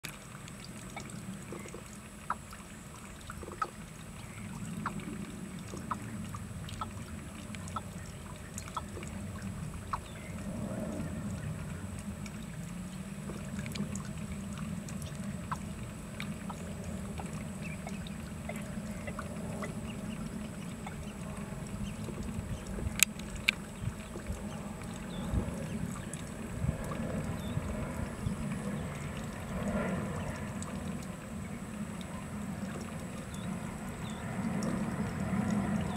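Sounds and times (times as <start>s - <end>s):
bird calling deep low notes: 3.4s - 35.9s.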